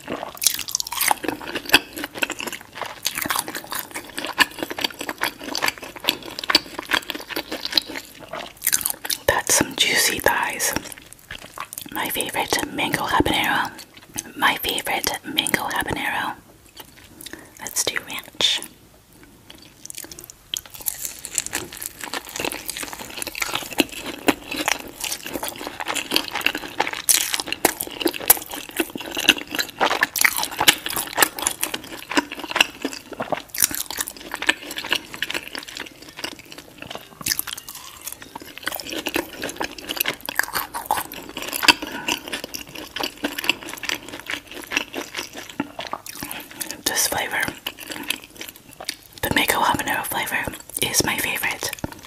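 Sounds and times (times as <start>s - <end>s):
crunching and chewing fried chicken: 0.0s - 52.0s.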